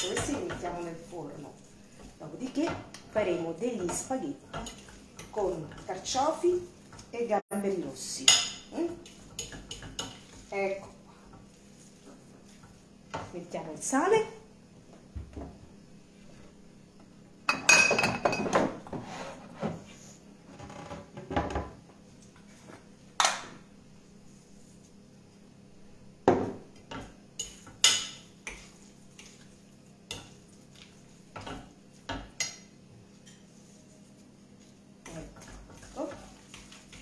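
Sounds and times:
dishes and utensils clattering: 17.5 - 19.8.

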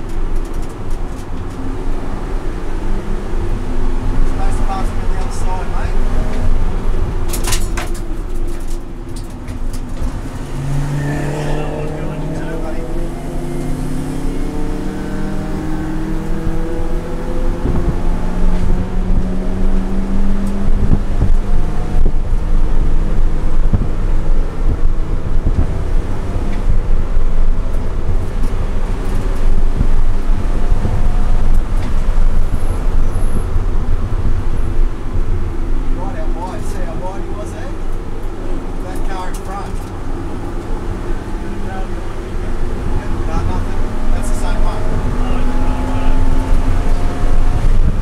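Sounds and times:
road and wind noise: 0.0 - 48.0
car engine accelerating hard: 8.6 - 48.0.

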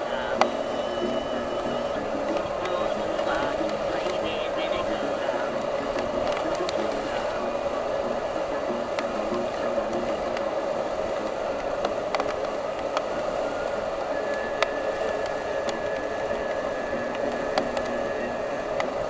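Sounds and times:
whitewater rapid roaring: 0.0 - 19.0.

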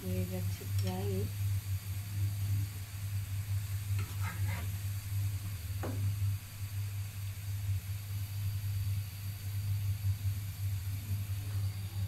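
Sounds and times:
steady low hum: 0.0 - 12.0
metal spatula scraping frying pan: 4.0 - 4.8.

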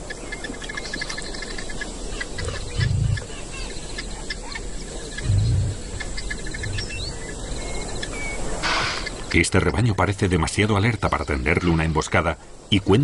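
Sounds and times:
birds calling: 0.0 - 13.0
insects chirping: 0.0 - 13.0
short low booms: 5.2 - 5.9.

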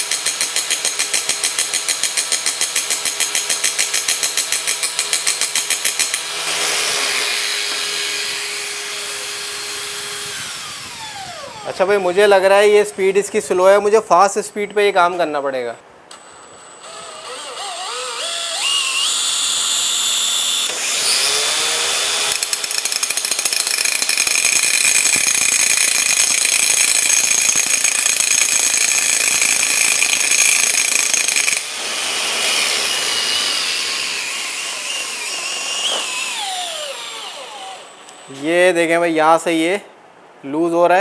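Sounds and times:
cordless drill running: 6.1 - 12.0, 16.1 - 38.2
angle grinder motor whining: 6.2 - 12.8, 16.1 - 25.4, 29.2 - 38.3
motor winding down: 6.4 - 12.0, 16.1 - 25.6, 30.0 - 38.2
disc grinding against metal shaft: 22.2 - 31.7.

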